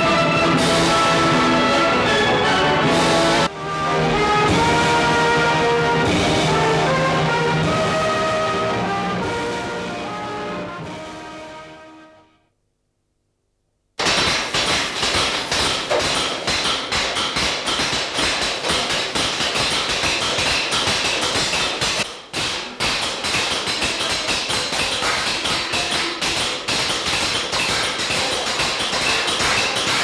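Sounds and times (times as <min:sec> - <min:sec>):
hammers striking metal cymbals: 0:14.0 - 0:30.0.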